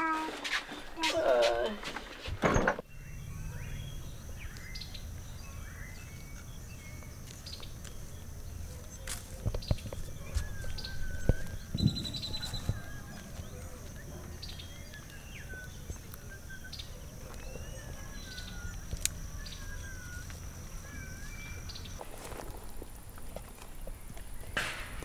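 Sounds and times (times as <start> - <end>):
birds calling with whistled notes: 2.5 - 25.0
low rumble: 2.8 - 15.9
high insect-like whine: 2.8 - 25.0.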